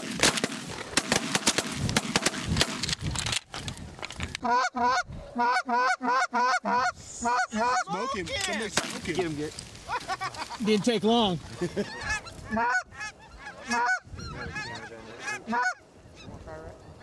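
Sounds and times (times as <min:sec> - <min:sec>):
wind buffeting microphone: 0:01.6 - 0:05.4, 0:11.0 - 0:15.0
goose honking: 0:04.4 - 0:08.2, 0:11.6 - 0:17.0.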